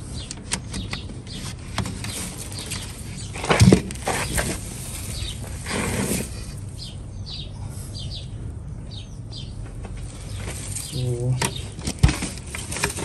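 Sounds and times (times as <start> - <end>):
potting mix rustling fall: 1.4 - 6.9, 10.0 - 13.0.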